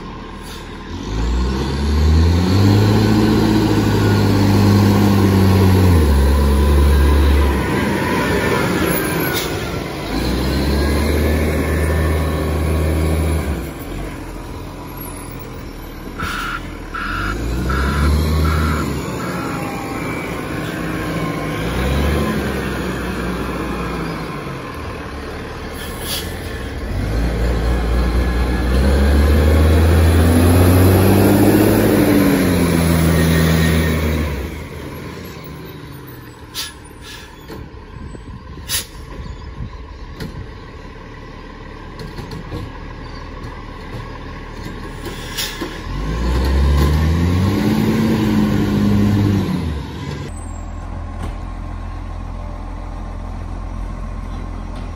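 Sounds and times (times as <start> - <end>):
garbage truck diesel engine revving: 0.0 - 37.2, 40.9 - 50.3
sharp short sounds: 16.2 - 20.2.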